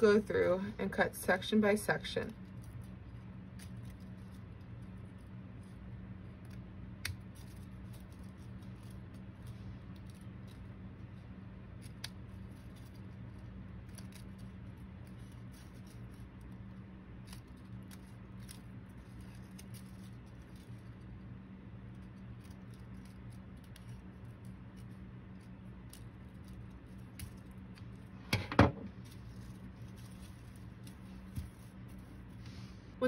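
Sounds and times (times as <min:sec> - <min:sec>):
scissors snipping paper: 0:11.8 - 0:16.5.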